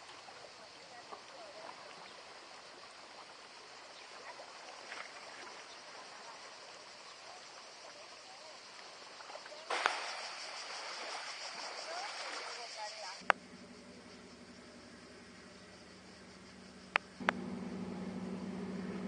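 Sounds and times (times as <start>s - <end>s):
sea water lapping: 0.0s - 13.2s
waves washing over pebbles: 9.7s - 13.1s.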